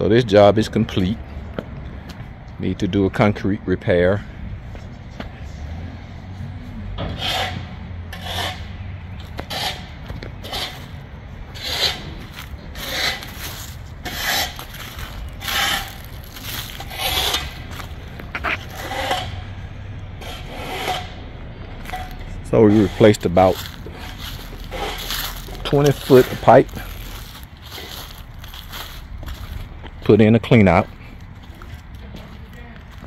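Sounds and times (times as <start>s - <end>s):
rake scraping through soil: 7.2s - 19.6s, 21.8s - 29.7s.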